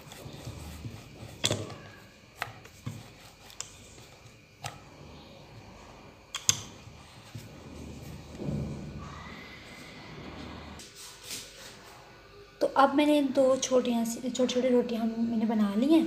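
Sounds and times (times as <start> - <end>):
rolling pin rolling dough: 0.0 - 10.8.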